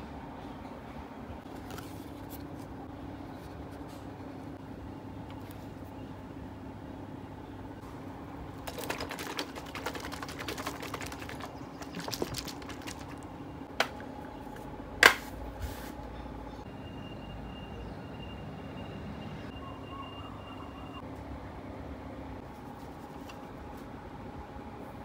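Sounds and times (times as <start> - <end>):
plastic cup crackling: 8.6 - 14.1.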